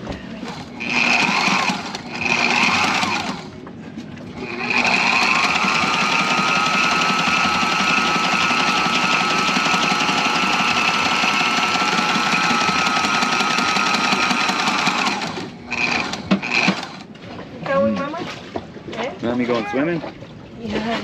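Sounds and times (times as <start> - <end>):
electric sewing machine running: 0.4 - 3.6, 4.4 - 17.1.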